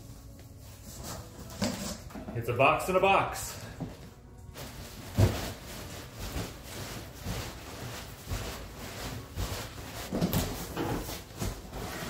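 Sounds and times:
cardboard boxes scraping and rustling: 0.6 - 2.1, 4.6 - 12.0.

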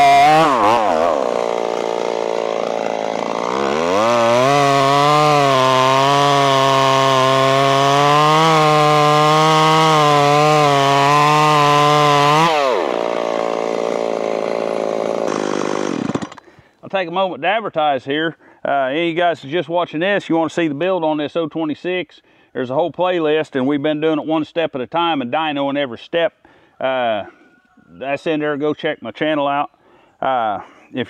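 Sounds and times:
chainsaw cutting log: 0.0 - 16.6.

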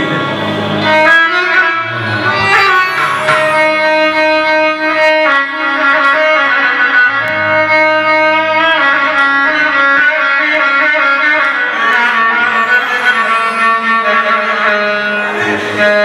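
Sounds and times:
instrumental party music: 0.0 - 10.1.

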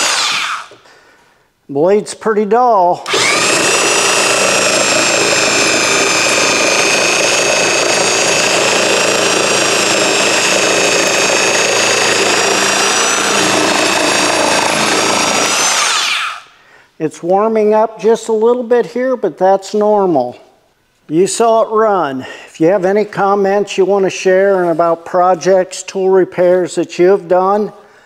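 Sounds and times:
reciprocating saw motor whine: 0.0 - 0.7, 3.0 - 16.5.

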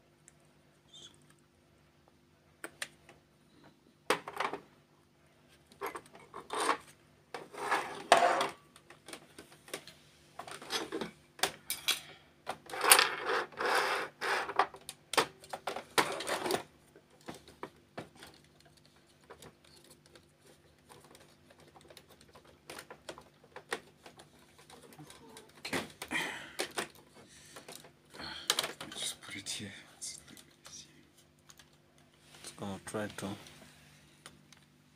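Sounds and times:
plastic and metal parts scraping: 5.7 - 11.2, 12.5 - 26.0.

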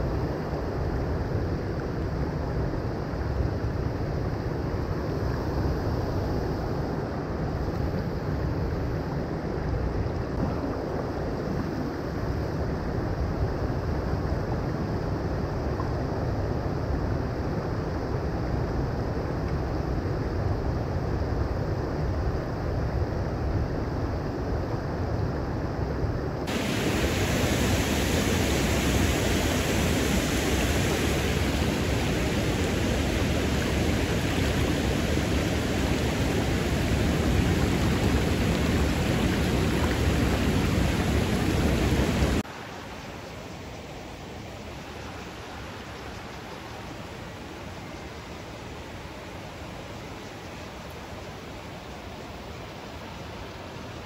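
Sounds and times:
water rushing over rocks: 26.5 - 43.2.

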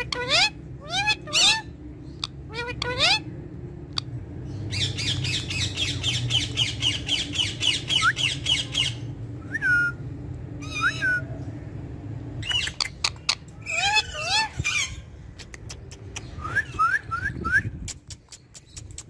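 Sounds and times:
parakeet squawking: 0.0 - 3.3, 12.4 - 15.1.

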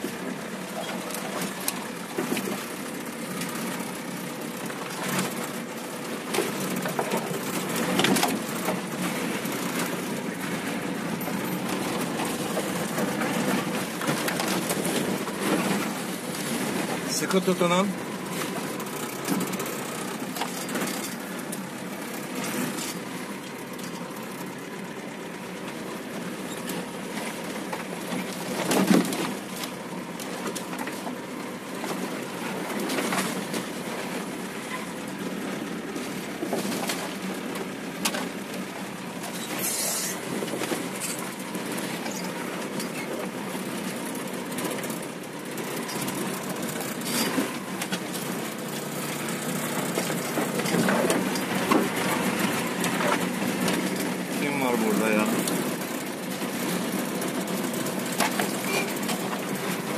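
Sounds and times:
off-road vehicle engine and body noise: 0.0 - 59.9
vehicle knocks and jolts: 26.5 - 34.4.

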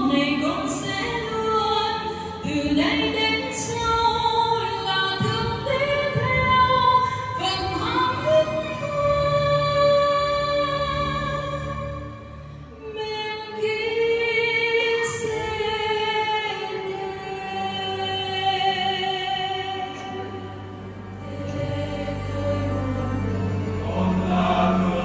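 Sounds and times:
choir singing a hymn: 13.0 - 25.0.

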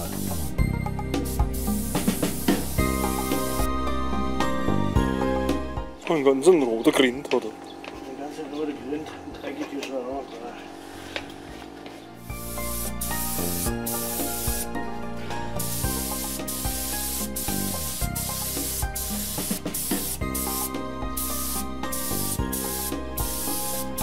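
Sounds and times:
background music: 0.0 - 6.5, 12.2 - 24.0
spray gun hissing: 1.2 - 3.7, 12.3 - 24.0.

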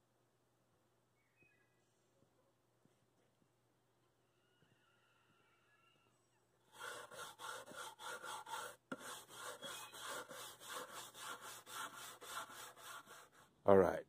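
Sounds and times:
wire brush scrubbing wood: 6.7 - 13.5.

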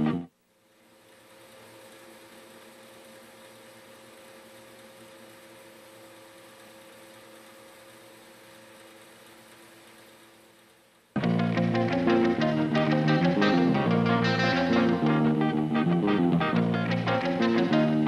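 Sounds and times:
faint room tone hiss: 0.0 - 18.0
low electrical hum: 0.0 - 18.0.

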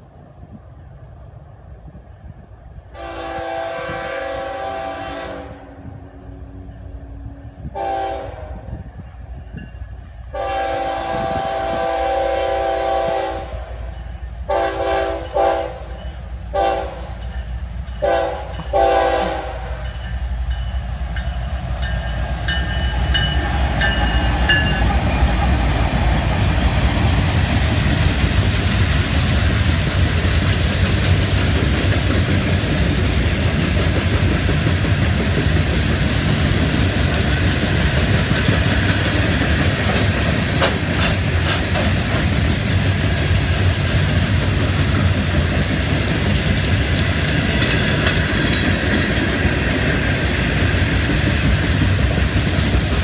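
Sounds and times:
locomotive horn blasts: 3.0 - 6.6, 7.6 - 8.9, 10.3 - 13.8, 14.5 - 17.2, 18.0 - 19.8.

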